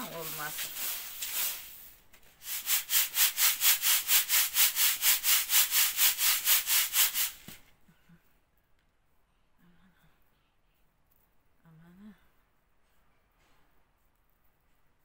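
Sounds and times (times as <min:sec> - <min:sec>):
soft rustle: 0:00.0 - 0:02.8
grain swishing in a sieve: 0:00.0 - 0:07.6.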